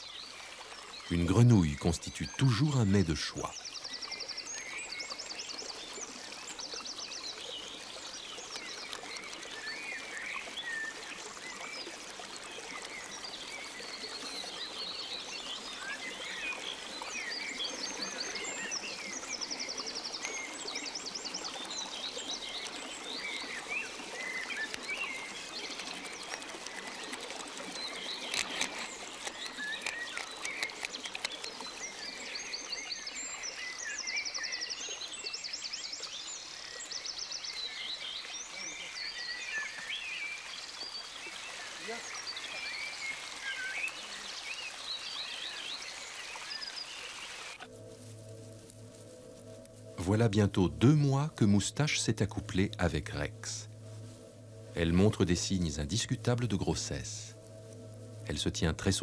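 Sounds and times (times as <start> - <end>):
birds singing: 0.0 - 47.6, 49.2 - 59.0
stream trickling over rocks: 0.0 - 59.0
crackle of clicks: 8.4 - 9.5, 24.5 - 31.8.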